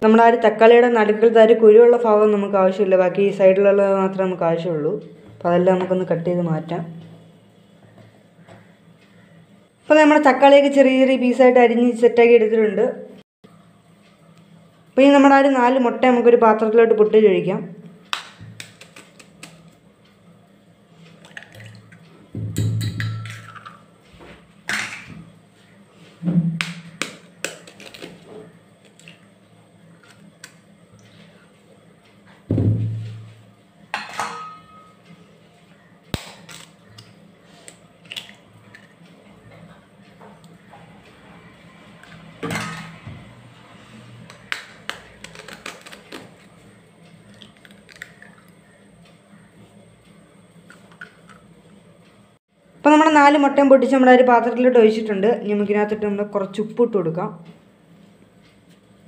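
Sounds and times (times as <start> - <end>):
dull thump: 32.5 - 33.0
eggshells cracking: 47.3 - 48.5.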